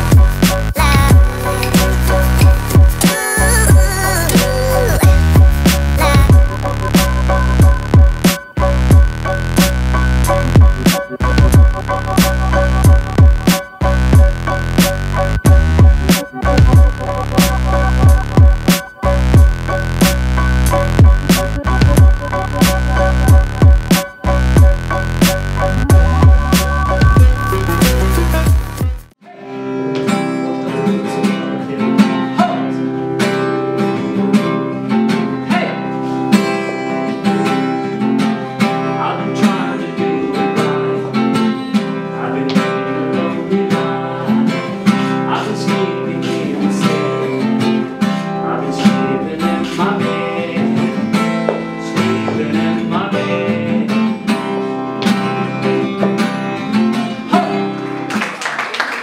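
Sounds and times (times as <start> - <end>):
man singing: 0.0 - 6.8, 27.1 - 29.8, 30.5 - 33.0, 35.2 - 54.6, 55.2 - 57.8
acoustic guitar strumming: 0.0 - 28.4, 29.2 - 58.2.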